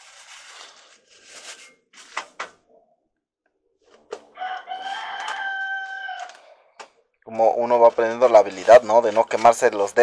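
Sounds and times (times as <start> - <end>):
rooster crowing: 4.3 - 6.6.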